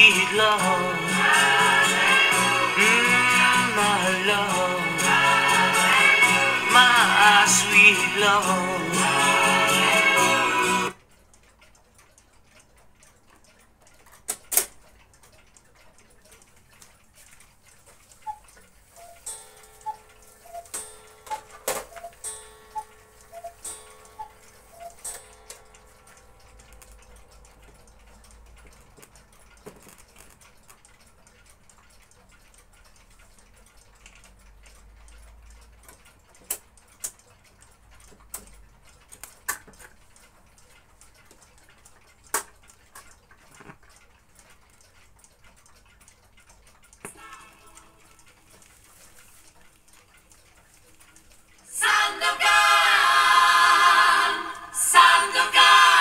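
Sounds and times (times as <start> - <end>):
light ticks: 10.9 - 52.6.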